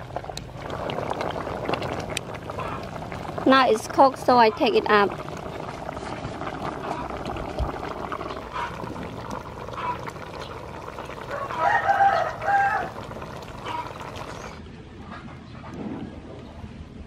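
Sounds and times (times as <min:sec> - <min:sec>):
steady background noise: 0:00.0 - 0:17.0
rooster crowing: 0:11.3 - 0:13.0.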